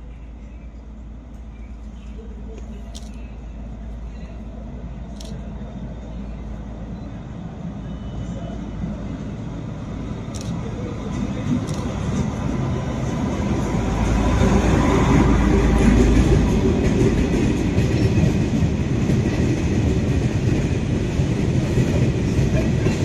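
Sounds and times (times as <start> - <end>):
diesel locomotive passing: 0.0 - 23.0.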